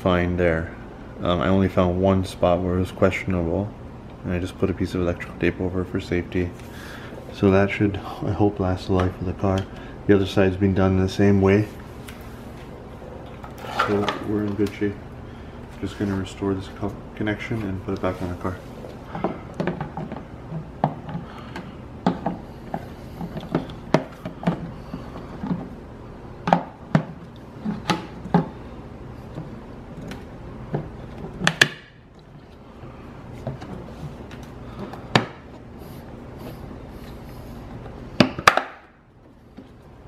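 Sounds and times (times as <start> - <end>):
hard plastic clicking and knocking: 19.1 - 25.8.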